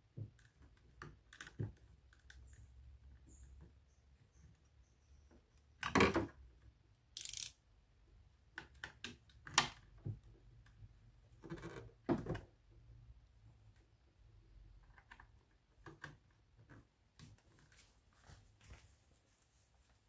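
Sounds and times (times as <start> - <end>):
plastic parts clicking and scraping: 7.2 - 7.6.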